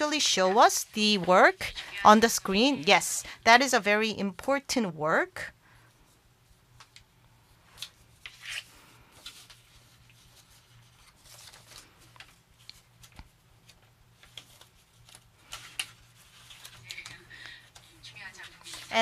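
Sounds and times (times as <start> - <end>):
faint rustling and clicks: 7.7 - 19.0.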